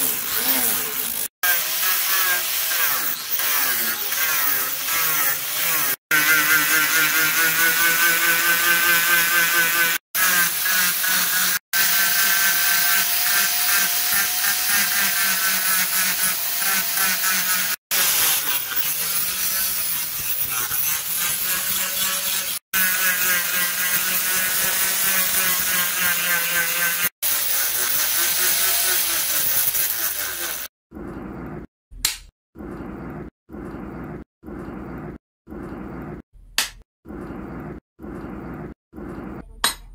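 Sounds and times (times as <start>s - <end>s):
angle grinder whining: 0.0s - 30.7s.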